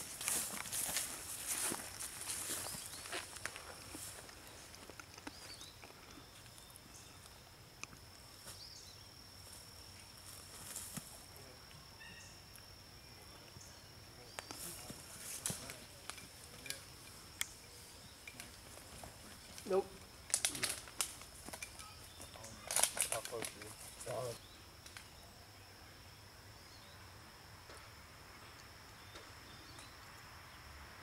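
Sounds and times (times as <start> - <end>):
faint sharp clicks: 24.8 - 25.1.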